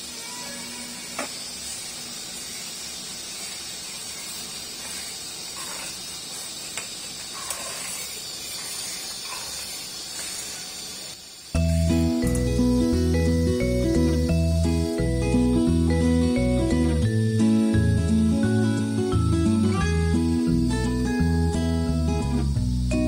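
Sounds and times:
curry sizzling in a pan: 0:00.0 - 0:23.0
music: 0:11.5 - 0:23.0.

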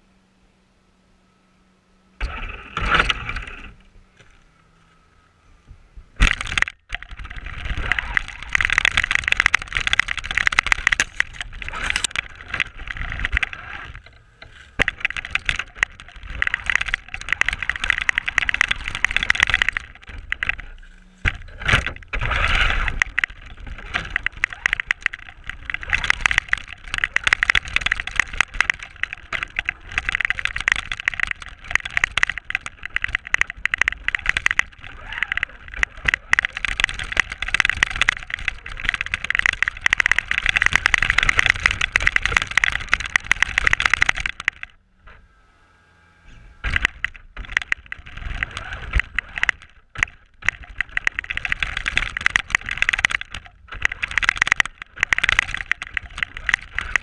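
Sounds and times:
tyres churning snow: 0:06.2 - 0:44.5
toy car motor whirring: 0:06.2 - 0:57.0.

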